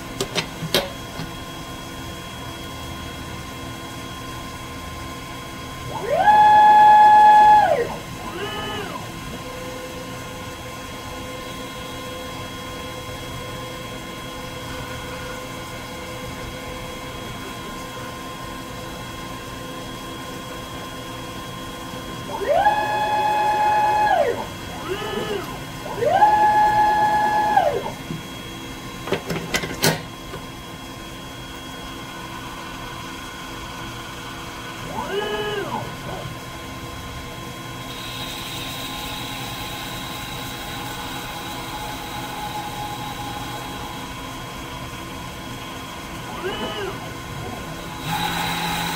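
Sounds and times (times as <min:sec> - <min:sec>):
drive motors whining: 0:05.9 - 0:10.5, 0:22.2 - 0:28.3, 0:34.8 - 0:36.5, 0:45.6 - 0:48.9
tool turret clicks and clunk: 0:29.1 - 0:30.1.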